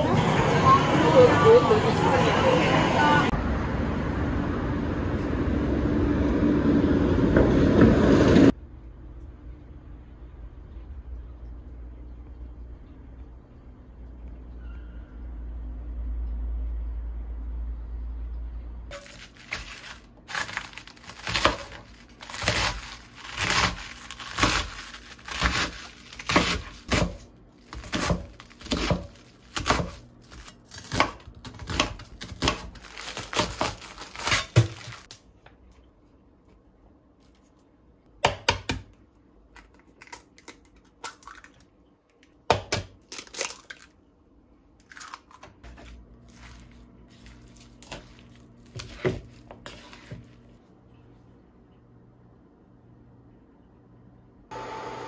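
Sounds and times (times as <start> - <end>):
knife slicing onion on cutting mat: 18.9 - 35.0, 45.6 - 50.5.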